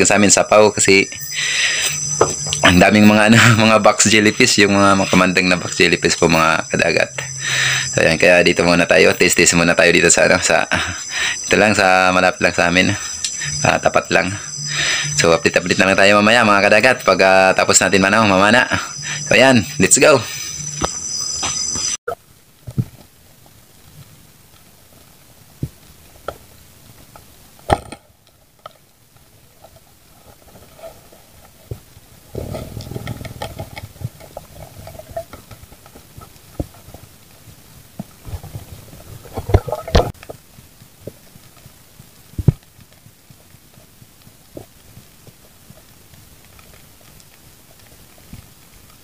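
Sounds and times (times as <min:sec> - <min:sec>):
low underwater hiss: 0:00.0 - 0:21.0, 0:36.1 - 0:49.0
muffled underwater knocks and bumps: 0:38.0 - 0:40.4.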